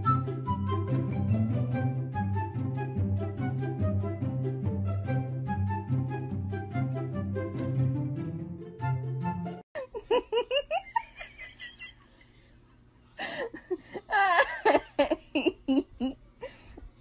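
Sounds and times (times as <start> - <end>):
background music: 0.0 - 9.6
person giggling: 9.8 - 12.4, 13.2 - 16.8.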